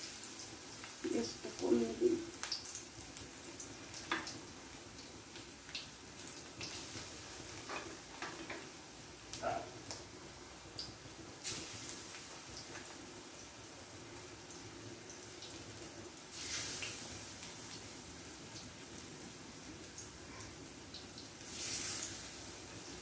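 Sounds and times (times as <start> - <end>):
food sizzling in oil: 0.0 - 23.0.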